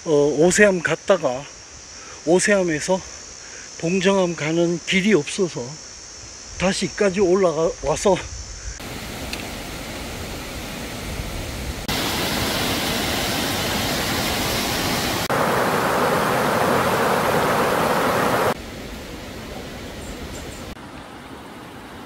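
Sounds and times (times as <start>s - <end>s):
rushing stream water: 8.8s - 22.0s.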